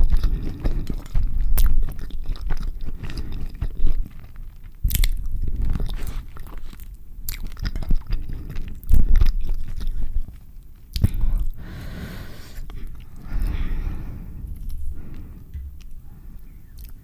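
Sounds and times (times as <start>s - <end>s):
chewing food: 0.0s - 11.9s, 12.5s - 13.8s, 14.5s - 17.0s
wet mouth clicks and smacks: 16.8s - 17.0s.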